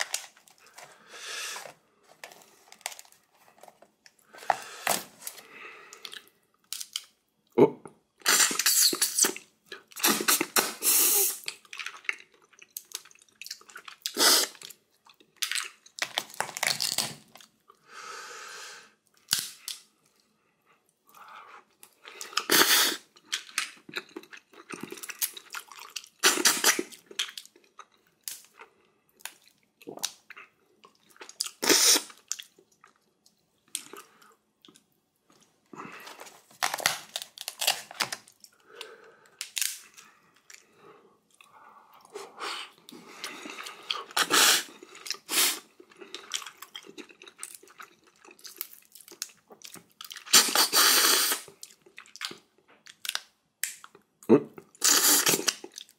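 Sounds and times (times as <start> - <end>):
chewing and crunching food: 0.0 - 7.2, 8.7 - 17.8, 19.0 - 55.9.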